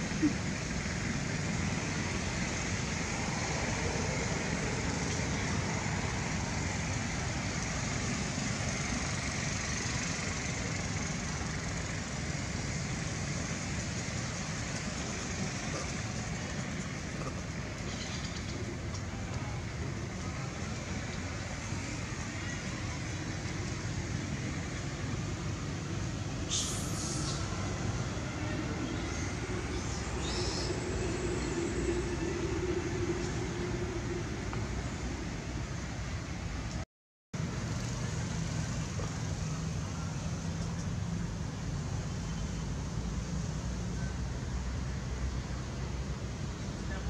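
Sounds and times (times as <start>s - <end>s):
hiss: 26.4s - 27.9s.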